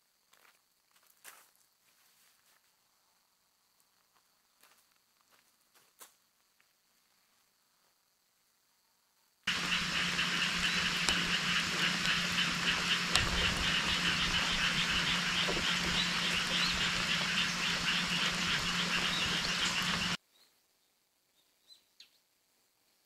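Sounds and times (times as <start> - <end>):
frogs calling: 9.5 - 20.2
steady rain: 9.5 - 20.2.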